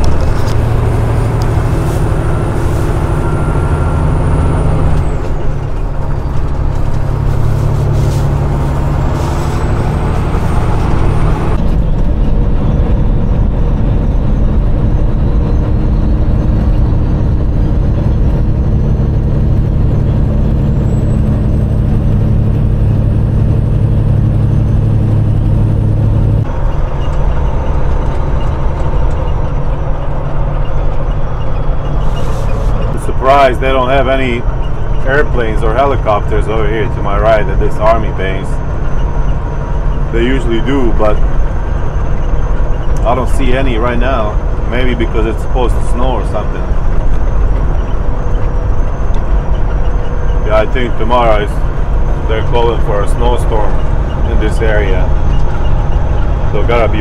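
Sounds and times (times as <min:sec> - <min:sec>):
diesel truck engine running: 0:00.0 - 0:57.0
road and wind noise: 0:00.0 - 0:57.0.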